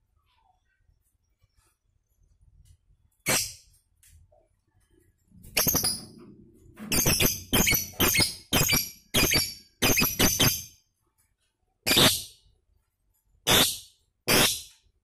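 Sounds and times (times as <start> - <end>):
lovebird chirping: 5.5 - 6.2, 6.9 - 10.7.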